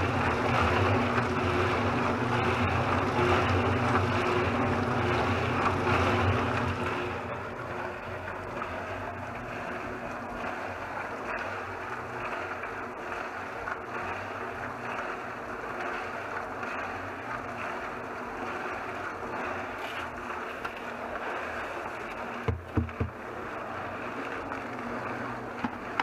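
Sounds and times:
cement mixer drum turning: 0.0 - 26.0
heavy thumps into drum: 22.4 - 23.2.

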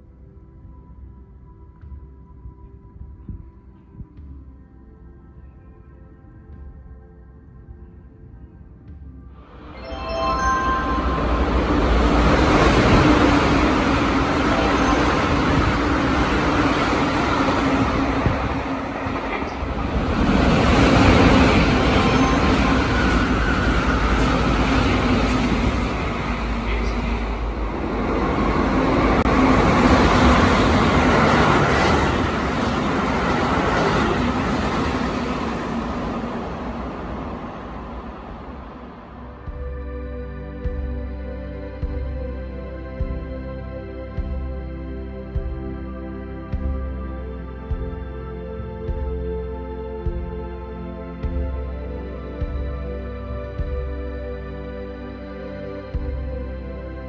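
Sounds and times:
train wheels rumbling on rails: 11.5 - 39.2.

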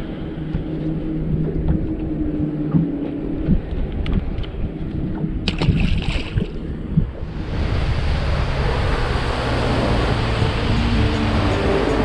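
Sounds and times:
boat running at speed: 0.0 - 12.0
low rumble: 0.0 - 12.0
wind and water rushing: 0.0 - 12.0.

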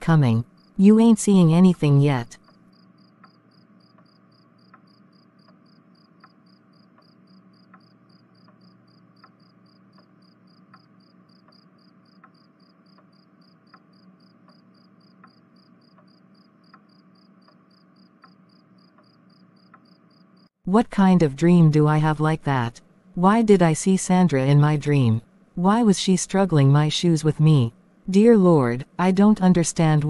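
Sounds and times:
cricket chirping: 2.4 - 20.5.

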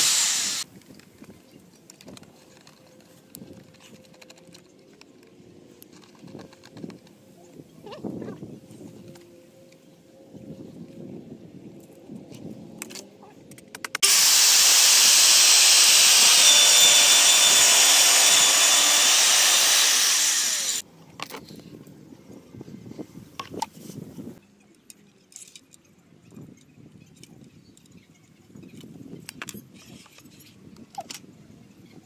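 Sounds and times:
circular saw cutting: 0.0 - 0.6, 14.0 - 20.8.

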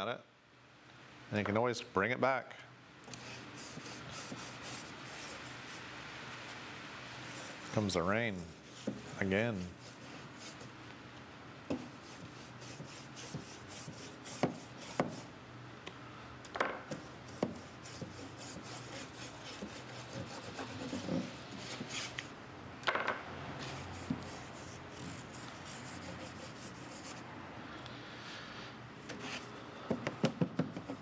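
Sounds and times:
brush and cloth rubbing wood: 3.2 - 5.9, 7.1 - 10.8, 11.7 - 15.3, 17.0 - 22.3, 23.6 - 27.2.

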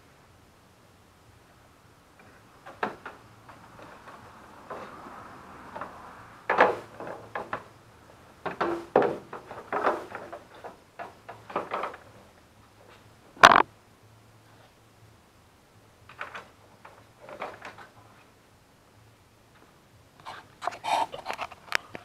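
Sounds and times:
plastic panel knocks and rattles: 8.4 - 12.1
sharp loud plastic knock: 13.4 - 13.6.

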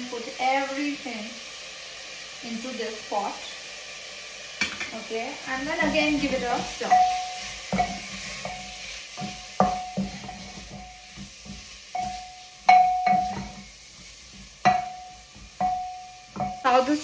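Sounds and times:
faint sizzle of frying: 0.0 - 17.0
wooden spoon knocking a pot: 5.8 - 13.7, 14.3 - 17.0.

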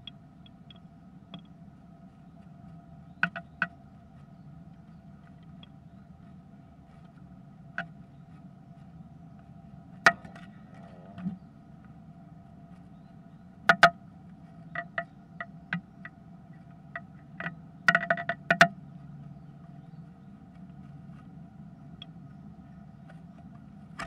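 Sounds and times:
faint steady hum: 0.0 - 24.0
bird tapping on wooden nest box: 3.1 - 3.8, 16.9 - 18.8.

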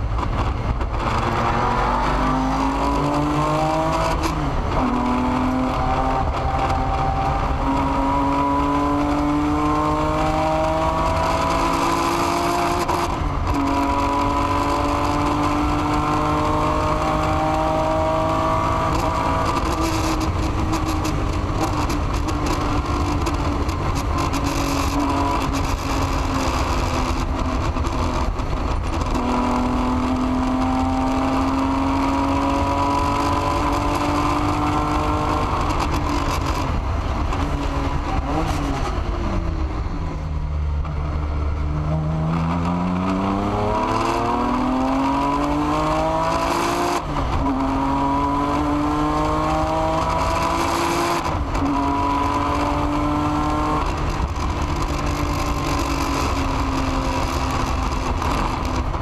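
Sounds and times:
race car engine revving: 0.0 - 59.0.

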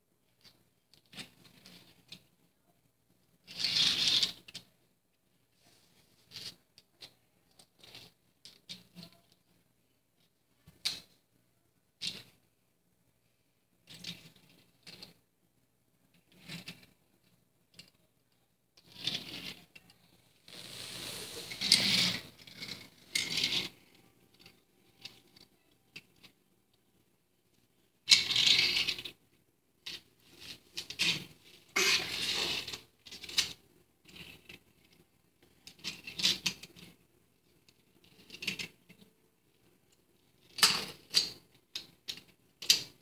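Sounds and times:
toy cars clicking on wooden floor: 0.3 - 2.3, 3.4 - 4.7, 6.2 - 9.5, 18.8 - 26.4, 27.5 - 29.2, 29.8 - 39.0, 39.6 - 43.0
toy car wheels scraping floor: 3.5 - 4.6, 20.2 - 25.2, 28.1 - 29.1, 30.2 - 33.6.

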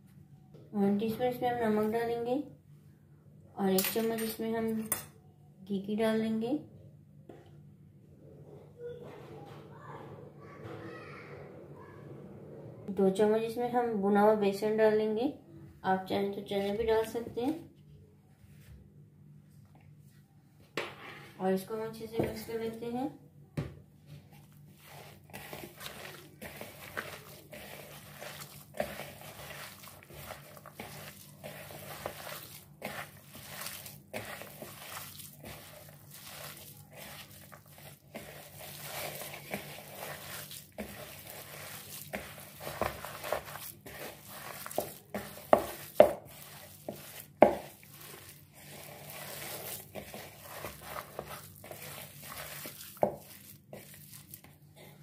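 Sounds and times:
hands squishing mince: 24.4 - 54.7.

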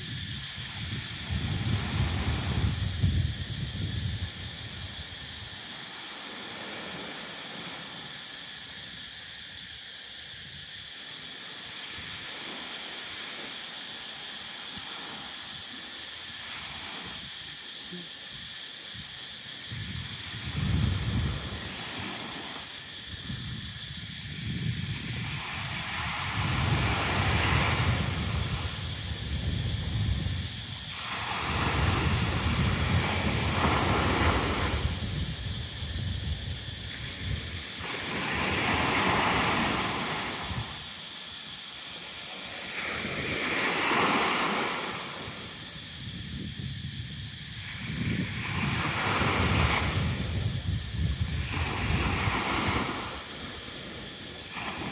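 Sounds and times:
wind buffeting microphone: 0.0 - 5.5, 19.6 - 22.3, 22.9 - 40.9, 45.6 - 54.9
waves washing onto sand: 0.0 - 54.9.

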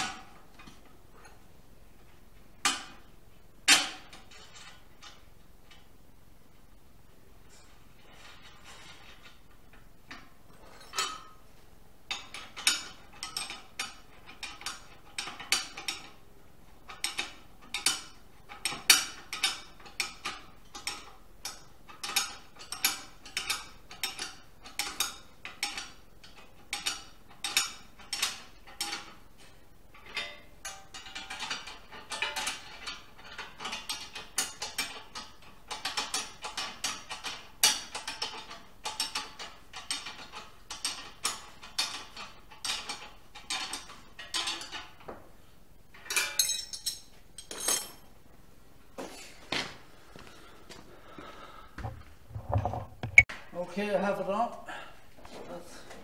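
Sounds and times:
metal clinks: 46.1 - 48.0.

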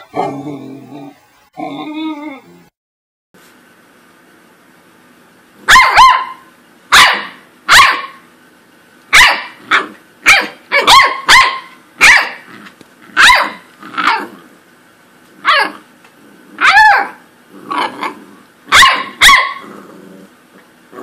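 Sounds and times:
puppy barking: 5.6 - 8.2, 9.1 - 12.5, 13.1 - 14.4, 15.4 - 15.9, 16.6 - 19.7.

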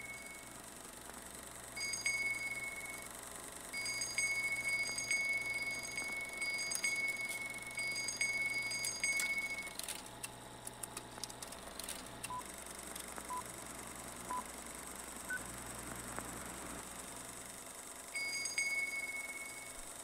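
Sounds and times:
small handbell ringing: 1.8 - 3.1, 3.7 - 9.8, 18.2 - 19.8.

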